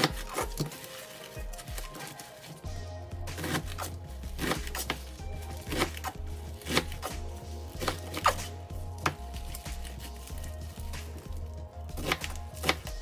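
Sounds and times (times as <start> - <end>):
background music with pulsing bass: 0.0 - 13.0
knife chopping on cutting board: 3.4 - 5.0, 5.6 - 7.2, 12.0 - 13.0.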